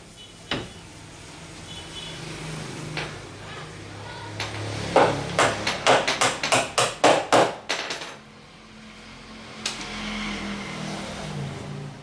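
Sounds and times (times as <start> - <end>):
rapid sharp knocks: 4.4 - 8.2.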